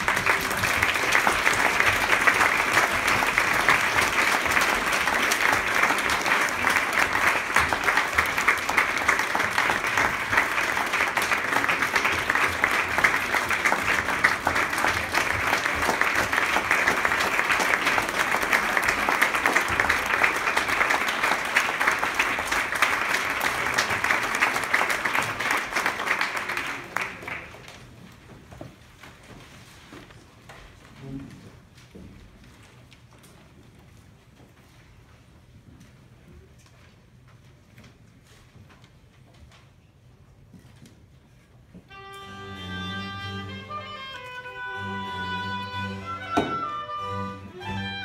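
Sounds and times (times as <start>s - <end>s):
audience applause: 0.0s - 28.0s.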